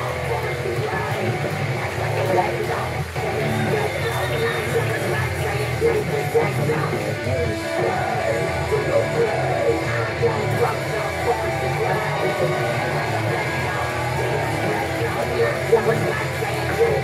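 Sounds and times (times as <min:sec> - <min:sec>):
heavy rock with electric guitar: 0:00.0 - 0:17.0.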